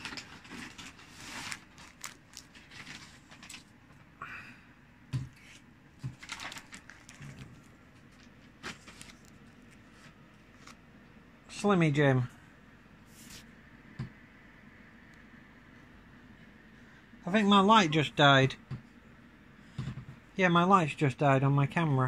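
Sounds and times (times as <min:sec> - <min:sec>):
snack packets crinkling: 0:00.0 - 0:03.8, 0:05.4 - 0:10.8.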